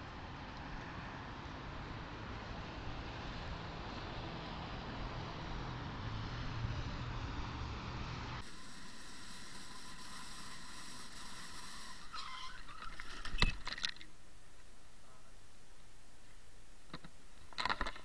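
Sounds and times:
scooter ride noise: 1.8s - 14.1s
thin steady whine: 5.8s - 17.4s
scooters colliding knock and clatter: 16.9s - 18.0s.

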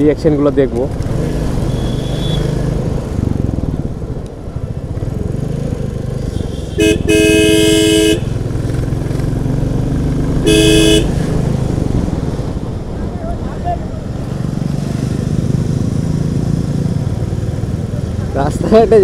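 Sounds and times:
motorcycle engine running: 4.5s - 12.6s
vehicle horn: 6.4s - 8.4s, 10.4s - 11.2s.

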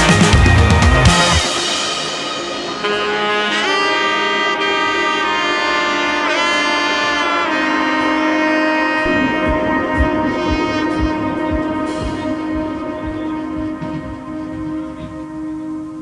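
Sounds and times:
sustained melody of held notes: 2.6s - 16.0s
low held chord: 6.9s - 16.0s
steady low beat: 8.9s - 16.0s.

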